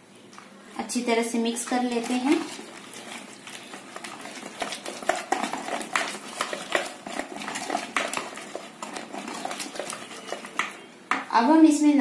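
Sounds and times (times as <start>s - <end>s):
whisk clicking against bowl: 1.7s - 10.8s.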